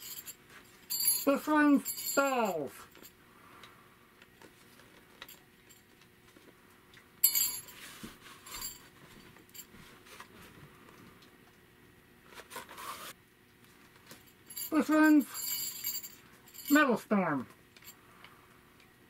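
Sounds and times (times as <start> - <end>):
cardboard sleeve rustling: 12.3 - 13.2.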